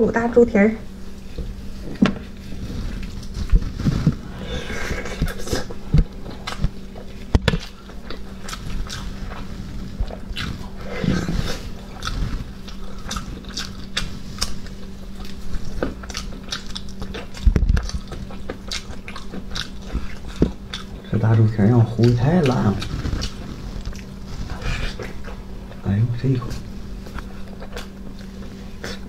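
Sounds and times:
wet chewing and lip smacks: 0:12.0 - 0:21.1, 0:27.0 - 0:29.0.

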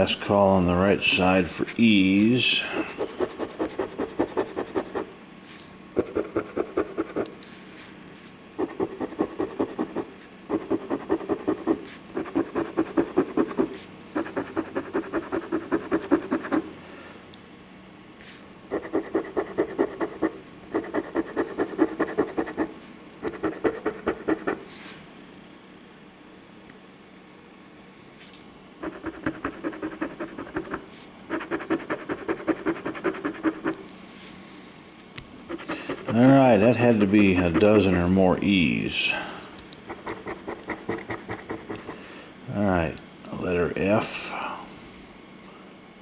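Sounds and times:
coin scratching lottery ticket: 0:03.0 - 0:05.1, 0:08.6 - 0:16.6, 0:18.7 - 0:24.6, 0:28.8 - 0:33.8, 0:35.5 - 0:38.2, 0:39.9 - 0:42.0.

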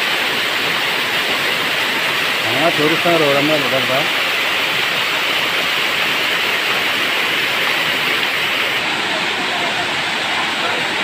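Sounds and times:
waterfall rushing hiss: 0:00.0 - 0:11.0.

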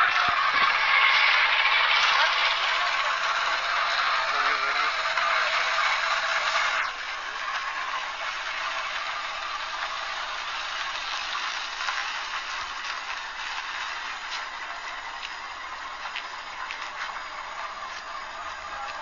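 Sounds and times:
street noise hiss: 0:00.0 - 0:19.0.

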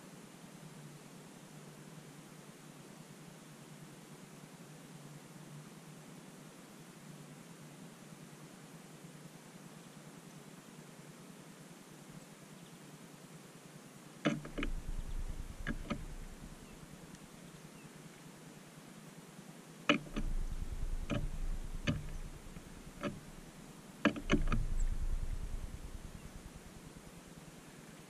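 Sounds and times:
faint steady hiss: 0:00.0 - 0:28.0
sharp clicks and knocks: 0:14.3 - 0:17.3, 0:19.9 - 0:27.3
low rumble: 0:14.5 - 0:17.1, 0:20.0 - 0:27.5.

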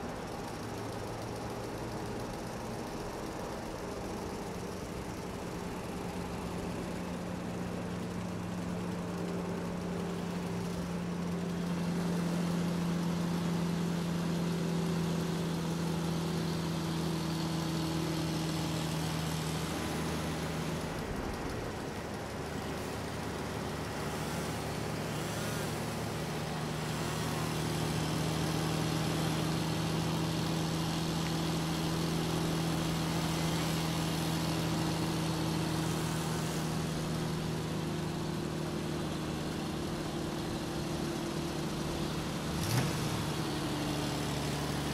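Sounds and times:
diesel engine and hydraulics: 0:14.9 - 0:44.9.

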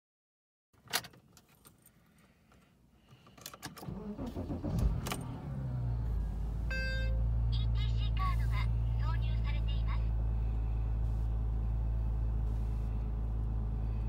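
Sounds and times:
car engine starting and idling: 0:00.8 - 0:14.0
ignition key jingling: 0:03.2 - 0:05.4.

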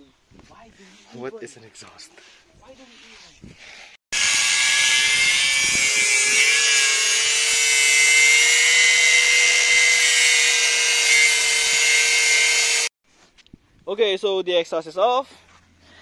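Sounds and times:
electric power tool running: 0:04.2 - 0:12.9.

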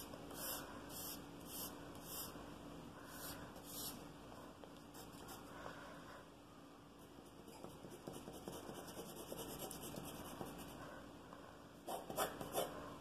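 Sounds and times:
pencil scratching on paper: 0:07.4 - 0:10.8, 0:11.8 - 0:12.8.

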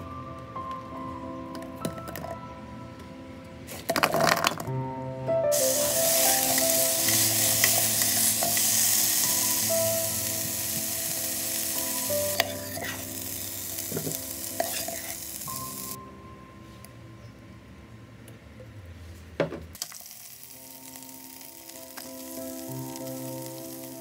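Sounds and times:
vegetables sizzling in a pot: 0:05.5 - 0:16.0, 0:19.8 - 0:24.0.

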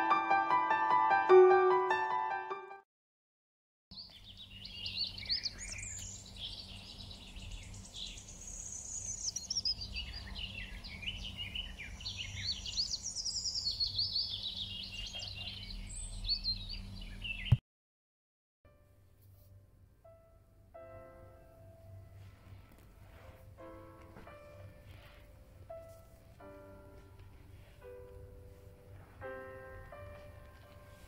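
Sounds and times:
small birds chirping: 0:03.9 - 0:17.6.

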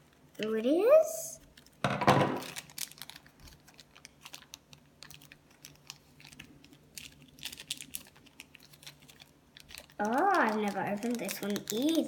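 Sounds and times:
foil packet crinkling: 0:02.4 - 0:12.0.

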